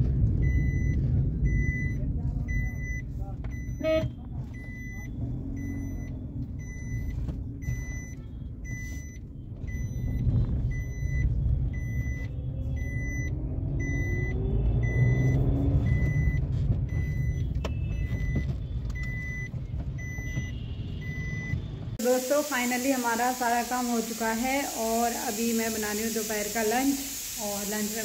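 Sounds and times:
car engine and road rumble: 0.0s - 22.0s
short high beep: 0.4s - 10.2s.

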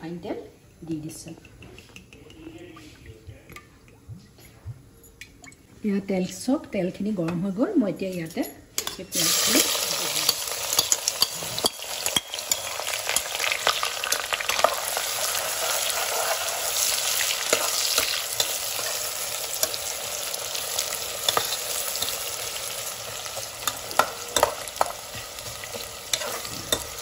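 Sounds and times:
spoon stirring and clicking on pot: 1.2s - 2.6s, 10.0s - 14.9s, 16.8s - 27.0s
onions sizzling in hot oil: 9.1s - 27.0s.

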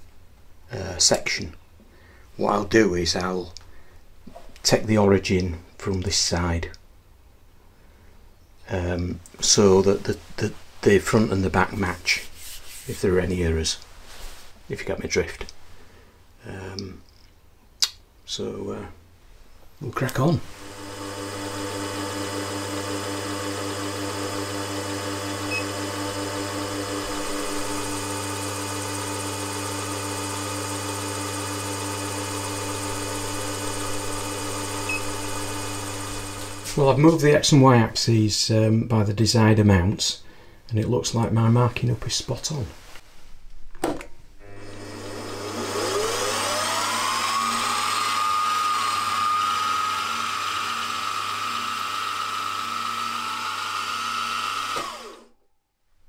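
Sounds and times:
drill cutting metal: 20.5s - 36.8s, 44.4s - 55.3s
milling machine motor whining: 20.5s - 36.9s, 44.4s - 55.3s.

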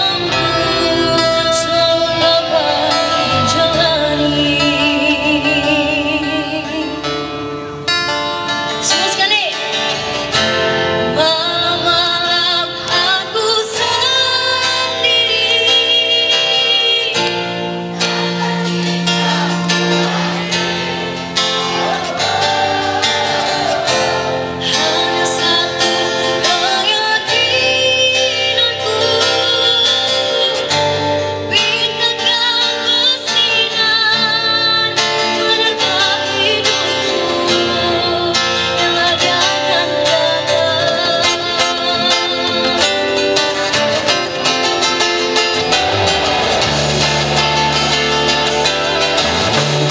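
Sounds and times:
girl singing into a microphone: 0.0s - 7.2s, 11.2s - 17.4s, 24.6s - 43.8s
live band playing: 0.0s - 49.9s.

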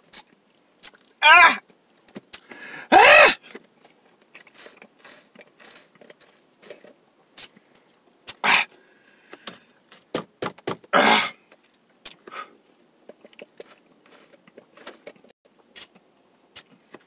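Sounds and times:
loud harsh breath: 2.4s - 3.4s, 8.3s - 9.7s
sucking drink through straw: 4.4s - 6.8s.

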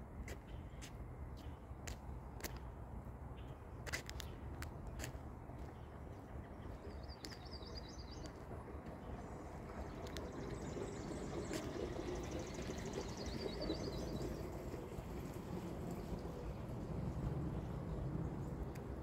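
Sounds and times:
low background rumble: 4.3s - 19.0s
birds chirping and trilling: 5.6s - 15.0s.

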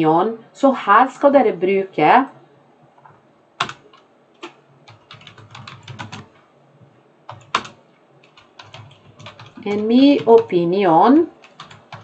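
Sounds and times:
computer keyboard typing: 3.0s - 6.4s, 7.3s - 10.6s, 11.2s - 12.0s.

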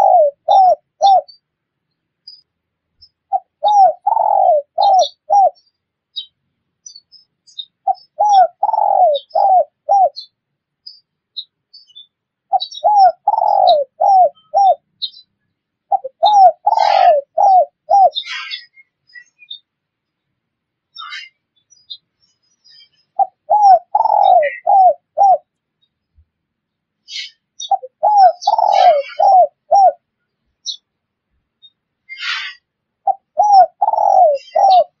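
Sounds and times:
dove cooing: 0.0s - 1.3s, 3.3s - 5.6s, 7.8s - 10.2s, 12.5s - 14.9s, 15.9s - 18.7s, 23.1s - 25.5s, 27.2s - 30.0s, 32.2s - 35.0s
small birds chirping: 0.0s - 35.0s
scratchy bird chatter: 21.0s - 25.5s, 27.1s - 30.0s, 32.1s - 35.0s.

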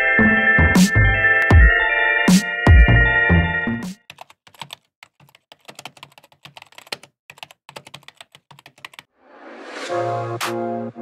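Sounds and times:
rising whoosh: 9.2s - 10.4s.

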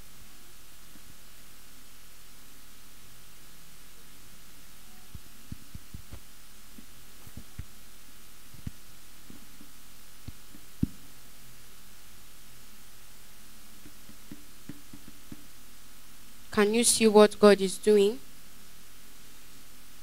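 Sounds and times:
low hum: 0.0s - 16.6s
steady hiss: 0.0s - 20.0s
soft low thumps: 5.0s - 7.9s, 8.5s - 11.3s, 13.7s - 15.7s.

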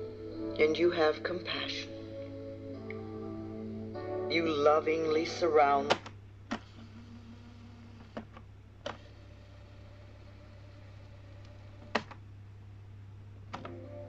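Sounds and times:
low mains hum: 0.0s - 14.0s
tape mechanism whine: 5.9s - 12.2s.

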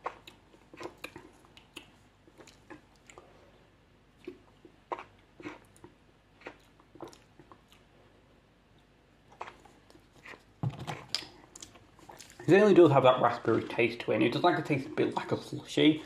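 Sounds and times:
lip smacks: 0.0s - 3.3s.

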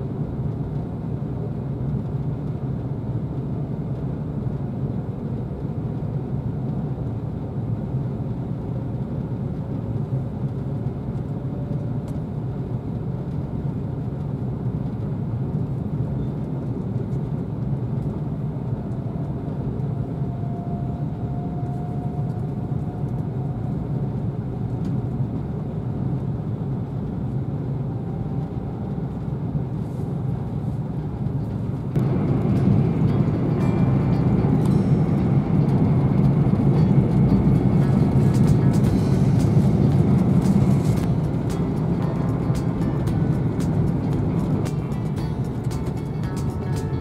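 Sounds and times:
train cabin low rumble: 0.0s - 47.0s
faint whine: 27.4s - 47.0s.

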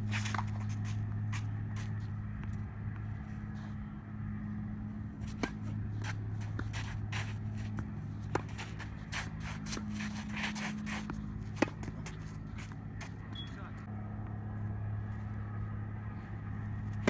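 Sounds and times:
footsteps scraping on court: 0.0s - 3.8s, 5.2s - 13.6s
steady low hum: 0.0s - 17.0s
tennis ball struck by racquet: 5.2s - 13.5s.

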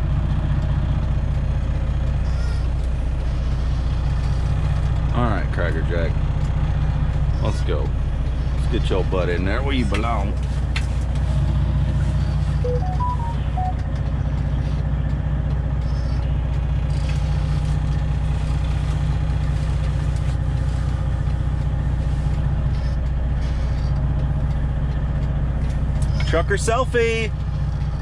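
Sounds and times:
truck diesel engine running: 0.0s - 28.0s
short chime: 12.7s - 13.8s.

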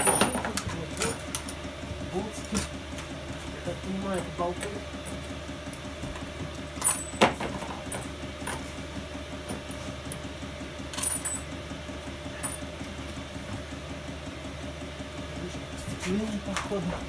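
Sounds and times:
metal parts clinking in a box: 0.0s - 1.2s
steady background hum: 0.0s - 17.0s.

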